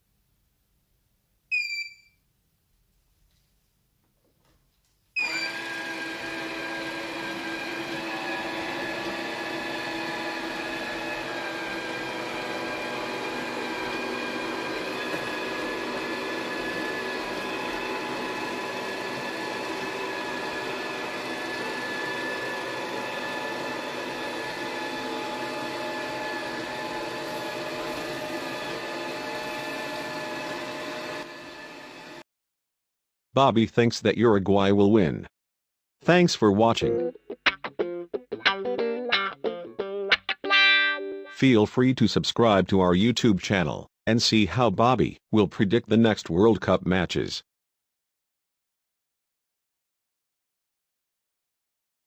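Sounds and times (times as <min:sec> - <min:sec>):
robot vacuum whirring: 0:05.2 - 0:32.2.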